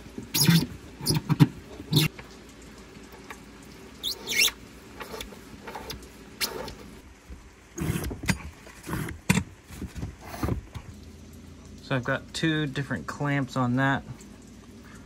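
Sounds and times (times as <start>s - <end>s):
cables rubbing and scraping: 0.3s - 2.1s, 4.0s - 7.0s
short rising squeaks: 4.0s - 6.8s.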